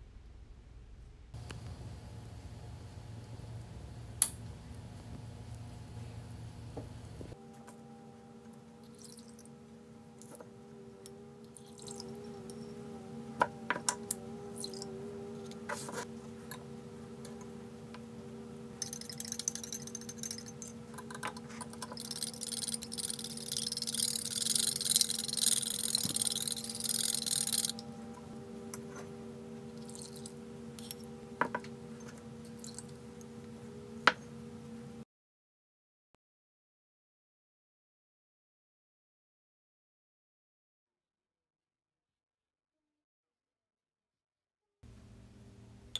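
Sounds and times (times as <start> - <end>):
low hum: 0.0 - 35.0
metal whisk beating in a bowl: 18.8 - 27.8.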